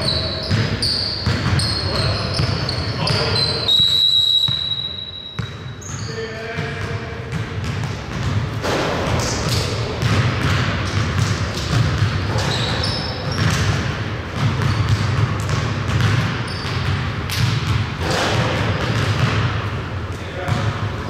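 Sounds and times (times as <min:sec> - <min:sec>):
sneakers squeaking: 0:00.0 - 0:21.0
basketball bouncing on hardwood: 0:00.4 - 0:03.2, 0:06.6 - 0:19.5.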